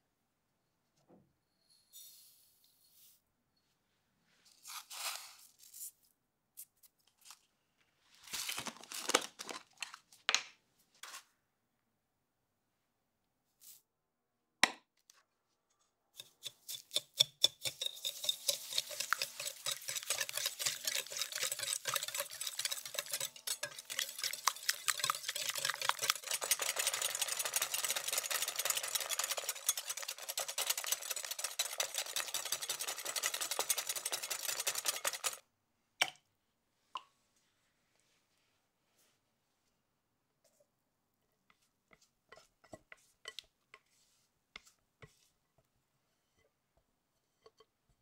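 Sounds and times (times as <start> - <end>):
whisk beating in glass bowl: 16.2 - 35.4.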